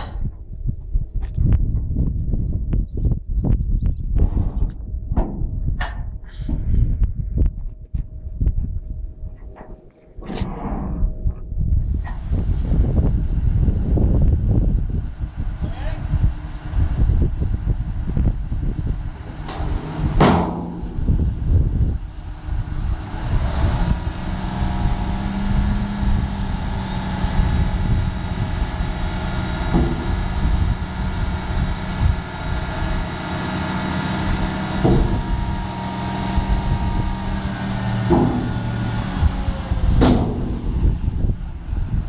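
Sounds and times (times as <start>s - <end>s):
tractor engine with hydraulic whine: 4.2s - 42.0s
sharp knocks: 34.8s - 35.7s, 38.0s - 39.2s.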